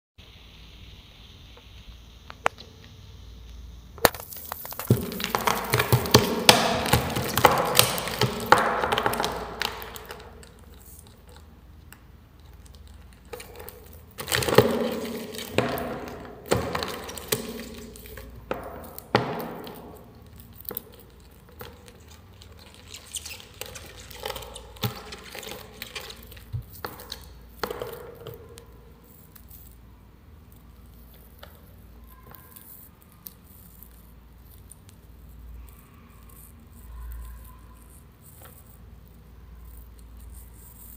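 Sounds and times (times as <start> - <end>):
scratching and clicking on substrate: 4.0 - 40.9.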